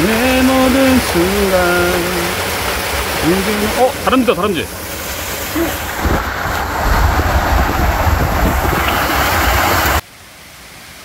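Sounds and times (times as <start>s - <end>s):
stream rushing over boulders: 0.0s - 11.0s
quiet forest background: 10.0s - 11.0s.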